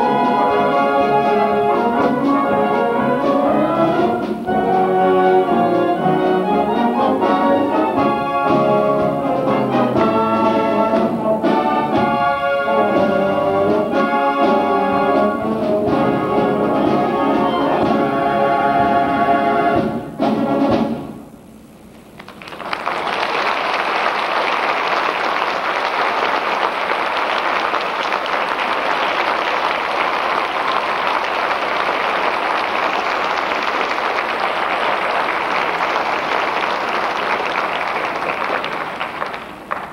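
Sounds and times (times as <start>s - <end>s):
orchestra with brass chord: 0.0s - 21.2s
audience applause: 22.0s - 39.9s.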